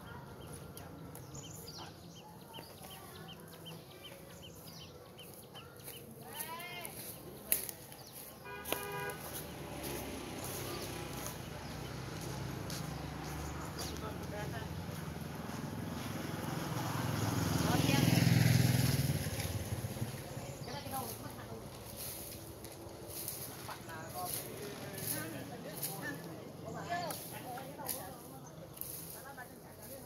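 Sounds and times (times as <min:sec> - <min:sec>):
bird chirping: 0:00.1 - 0:09.3
horn toot: 0:08.4 - 0:10.0.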